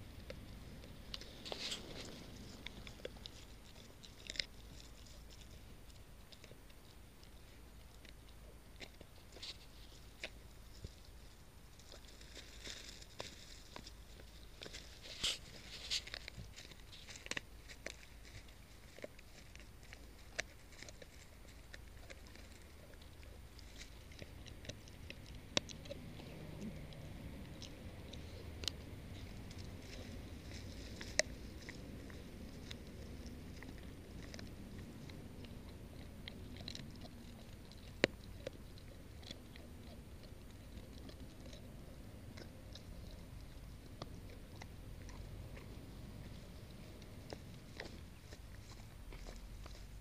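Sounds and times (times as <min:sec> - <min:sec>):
dog chewing treat: 0:00.0 - 0:50.0.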